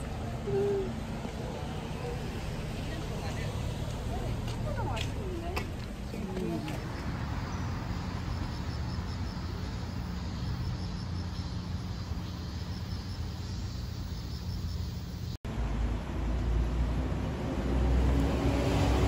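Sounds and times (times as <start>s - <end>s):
insects chirping: 7.0s - 15.4s.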